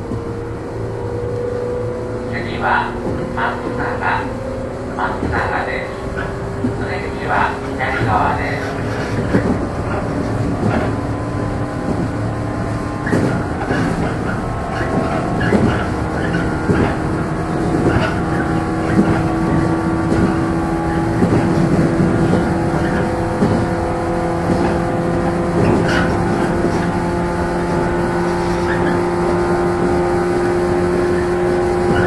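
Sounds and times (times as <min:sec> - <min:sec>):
electric train motors humming: 0:00.0 - 0:32.0
train wheels knocking over rail joints: 0:05.0 - 0:29.0, 0:29.6 - 0:32.0.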